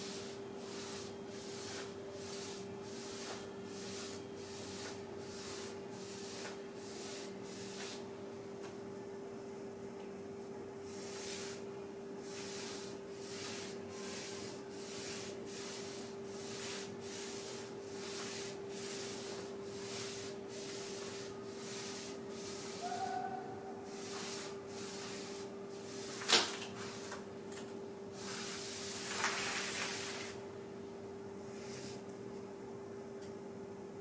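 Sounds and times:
steady hum: 0.0 - 34.0
charcoal scratching on paper: 0.2 - 8.0, 10.9 - 11.6, 12.2 - 26.2.

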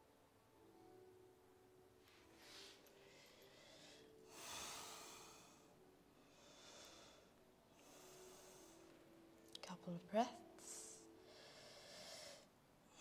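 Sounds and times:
woman breathing: 2.2 - 9.3, 10.6 - 13.0.

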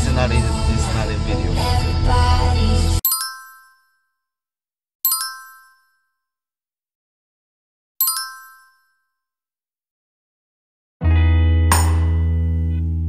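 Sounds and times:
bright chime dinging: 3.1 - 4.0, 5.1 - 6.0, 8.0 - 9.0.

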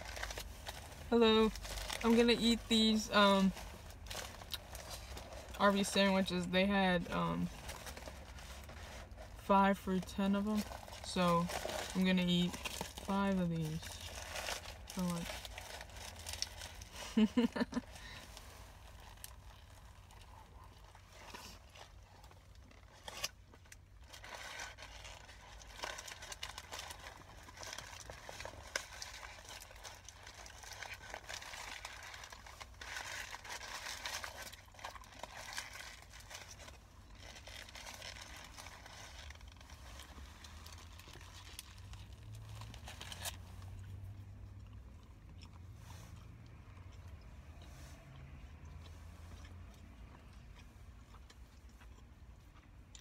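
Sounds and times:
paper wrapper crinkling: 0.0 - 2.7, 10.5 - 44.1
chewing: 18.9 - 53.0.

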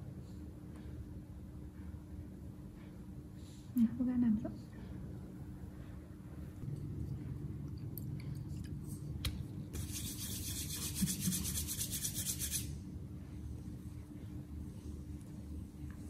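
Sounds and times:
hands rubbing together: 9.8 - 12.7.

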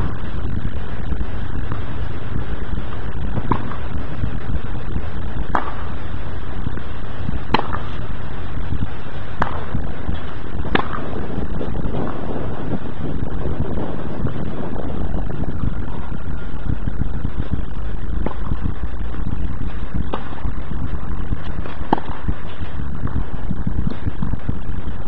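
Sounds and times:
wind rumble on microphone: 0.0 - 25.0
tennis balls struck by rackets: 3.4 - 3.8, 5.5 - 6.0, 7.5 - 8.0, 9.4 - 11.3, 21.5 - 22.7.

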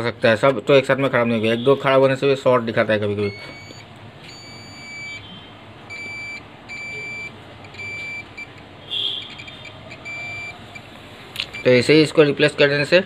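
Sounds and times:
multimeter continuity beeps: 3.2 - 12.1.

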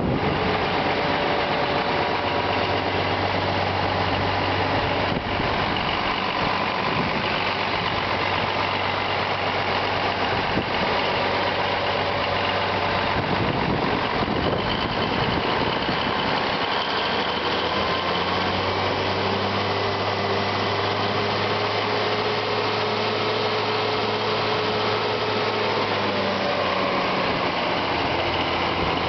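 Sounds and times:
diesel tractor engine idling: 0.0 - 29.0.

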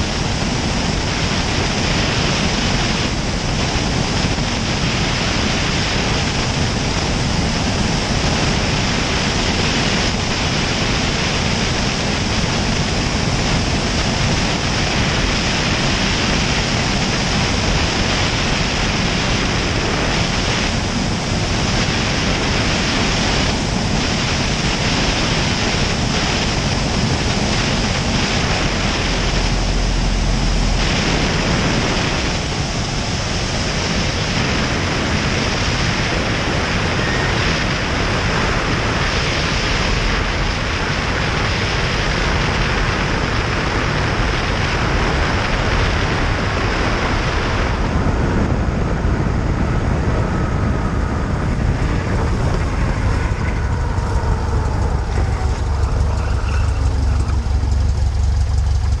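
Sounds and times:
airplane engine drone: 0.0 - 59.0
deep rumble: 0.0 - 59.0
airflow rushing over camera: 2.2 - 41.2, 47.4 - 59.0.

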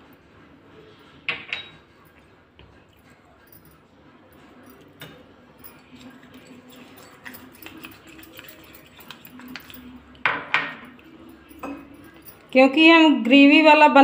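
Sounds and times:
spoon scraping a bowl: 4.4 - 12.5.

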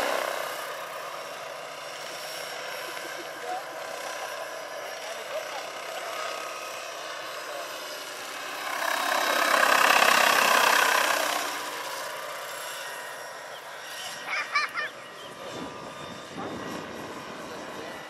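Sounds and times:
model helicopter rotor drone: 0.0 - 18.0.

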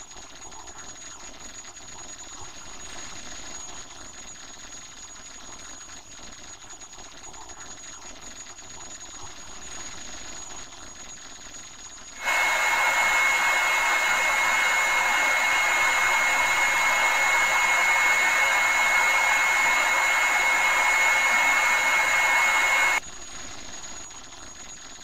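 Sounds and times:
high-pitched whine: 12.2 - 23.0
steady rushing noise: 12.2 - 23.0.

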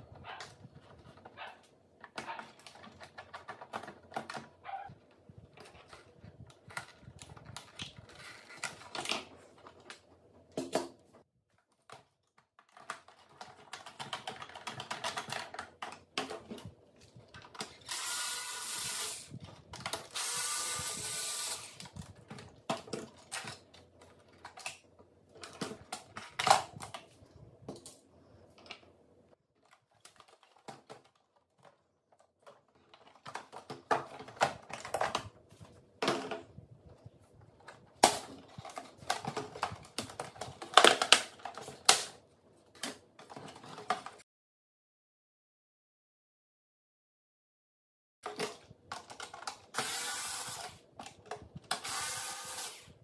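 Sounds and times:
screws and plastic parts rattling: 0.0 - 9.9, 11.7 - 27.0, 29.6 - 35.8, 48.2 - 53.0
cordless screwdriver whirring: 17.8 - 19.4, 20.0 - 21.9, 49.8 - 50.7, 51.8 - 52.9.

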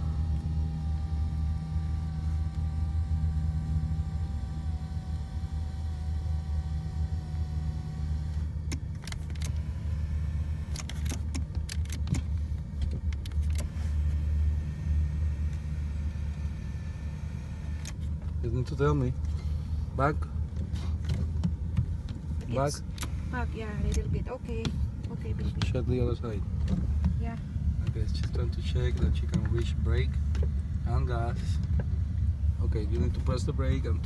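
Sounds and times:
power seat motor whining: 0.0 - 20.1, 20.7 - 34.0
steady low rumble: 0.0 - 34.0
seat switches clicking: 8.6 - 9.7, 10.6 - 13.7.

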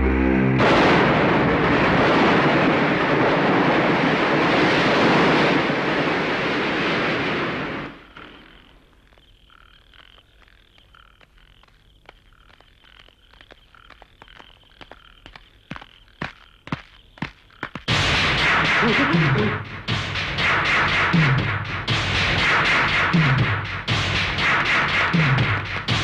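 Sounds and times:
frogs croaking: 7.9 - 17.9.

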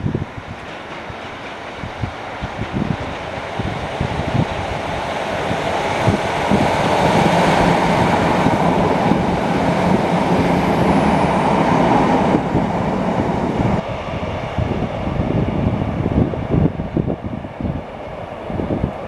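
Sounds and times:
diesel train rumbling past: 0.0 - 19.0.

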